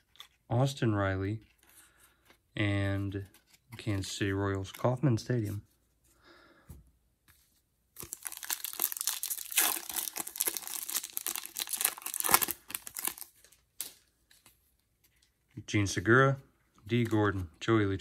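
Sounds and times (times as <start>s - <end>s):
wrapper tearing and crinkling: 8.0s - 14.5s.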